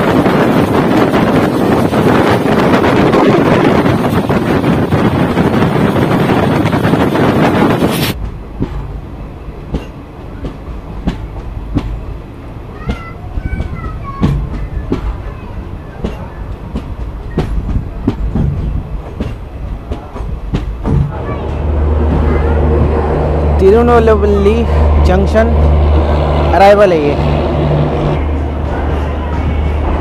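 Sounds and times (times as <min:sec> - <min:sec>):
train wheels clickety-clack: 0:00.0 - 0:09.0, 0:09.6 - 0:12.1, 0:12.8 - 0:23.1
wind buffeting microphone: 0:00.0 - 0:30.0.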